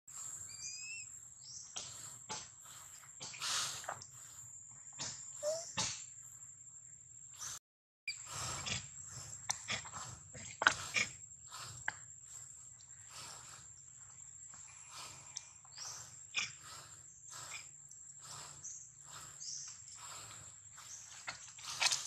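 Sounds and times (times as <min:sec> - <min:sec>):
insect chorus whine: 0:00.1 - 0:22.0.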